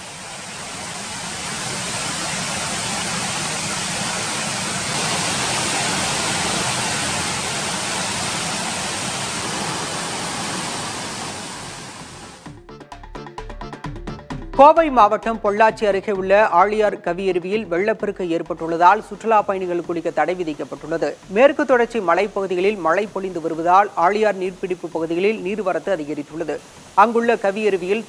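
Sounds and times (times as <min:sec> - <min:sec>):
waterfall rushing: 0:00.0 - 0:12.5, 0:18.4 - 0:28.0.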